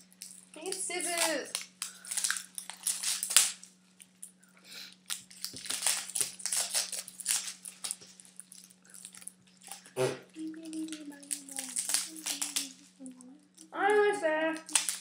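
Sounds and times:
sticky tape crinkling and tearing: 0:00.0 - 0:15.0.

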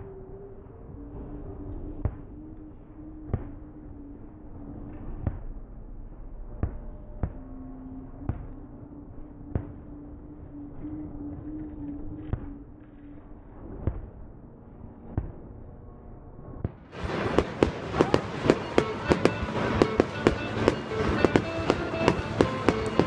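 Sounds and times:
fireworks bangs: 0:16.6 - 0:23.0.

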